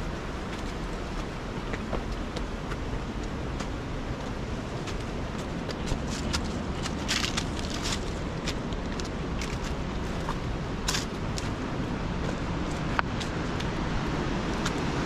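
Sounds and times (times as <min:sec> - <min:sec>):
wind rumble on microphone: 0:00.0 - 0:15.0
footsteps crunching on stones: 0:00.6 - 0:11.6.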